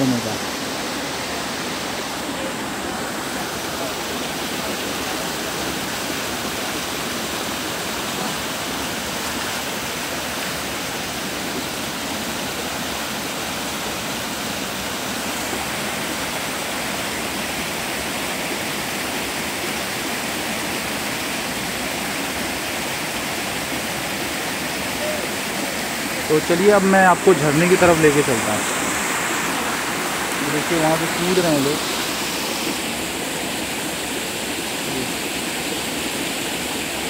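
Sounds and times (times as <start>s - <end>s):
stream rushing over rocks: 0.0s - 37.0s.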